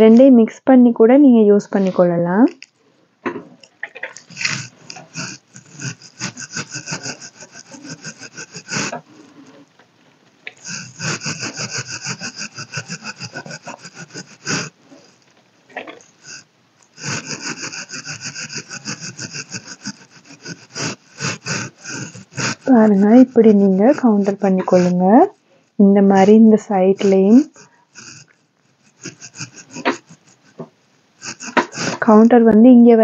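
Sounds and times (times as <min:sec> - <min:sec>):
brush rubbing on skin: 0:04.1 - 0:09.7, 0:10.5 - 0:15.3, 0:17.0 - 0:30.6.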